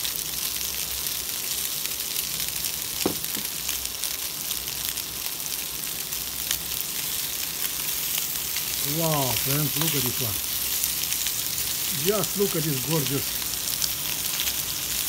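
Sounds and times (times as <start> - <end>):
chicken frying in oil: 0.0 - 15.0
crackling pops: 2.9 - 4.0, 7.7 - 14.6
short knock: 3.0 - 3.5.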